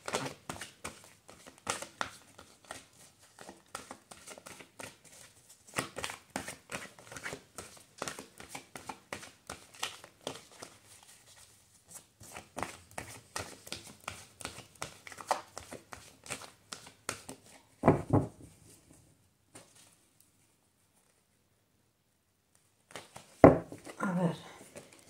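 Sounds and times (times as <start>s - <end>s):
cards being shuffled: 0.0s - 17.6s, 22.9s - 24.0s.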